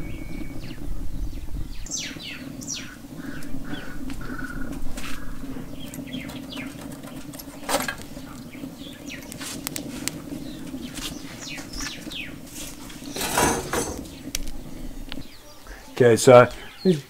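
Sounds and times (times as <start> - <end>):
birds chirping: 0.0 - 17.0
wood fire crackling: 0.0 - 17.0
sticks clattering in metal pipe: 13.1 - 14.3.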